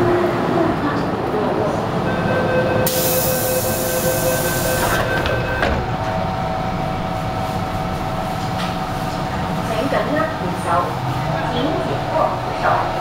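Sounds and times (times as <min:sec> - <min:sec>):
train electrical whine: 0:02.8 - 0:09.9
loud air hiss: 0:02.9 - 0:04.8.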